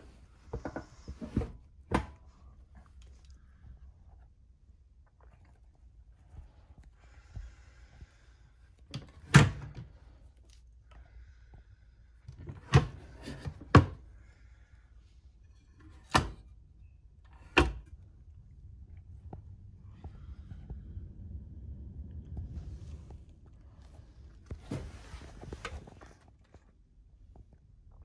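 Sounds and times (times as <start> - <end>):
low steady rumble: 16.5 - 28.0.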